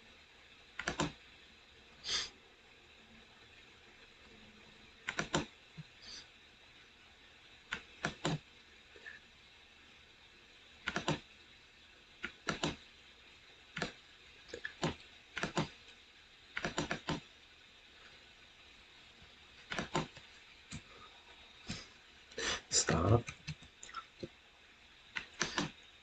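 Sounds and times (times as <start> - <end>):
computer mouse and keyboard clicks: 0.8 - 1.2, 5.1 - 5.5, 7.7 - 8.4, 10.8 - 11.2, 12.2 - 12.8, 13.8 - 15.7, 16.6 - 17.2, 19.7 - 20.8, 23.2 - 24.0, 25.2 - 25.8.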